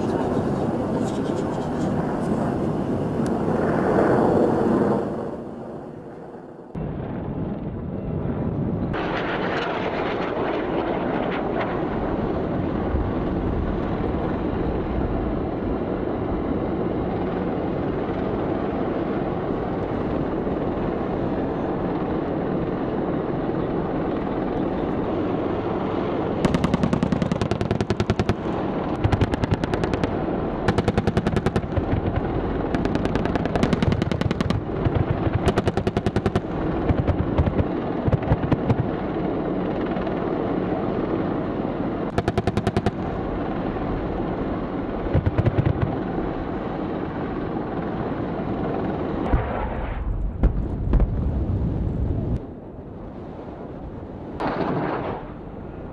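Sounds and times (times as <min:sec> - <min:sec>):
rapid cannon fire bursts: 0:26.4 - 0:39.0, 0:42.1 - 0:43.4, 0:45.0 - 0:46.0.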